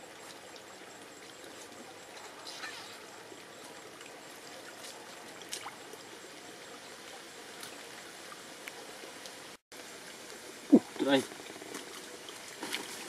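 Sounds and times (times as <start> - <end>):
shallow stream trickling: 0.0 - 13.0
faint clicks and splashes: 0.2 - 6.1.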